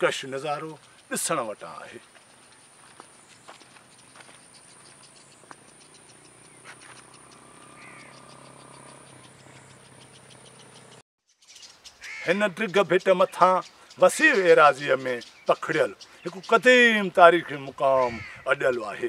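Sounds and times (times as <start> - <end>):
high insect buzz with ticking: 0.0 - 12.2
short bird chirp: 3.9 - 12.2.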